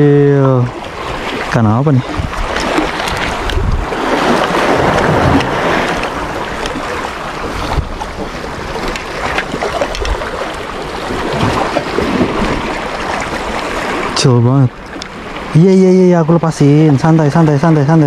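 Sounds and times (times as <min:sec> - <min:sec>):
wind buffeting microphone: 0:00.7 - 0:14.2
small waves washing against rocks: 0:00.8 - 0:14.2.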